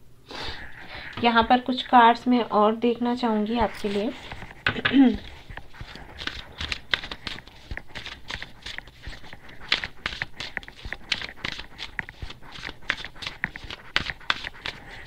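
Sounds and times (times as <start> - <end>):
cards being shuffled: 3.6 - 15.0.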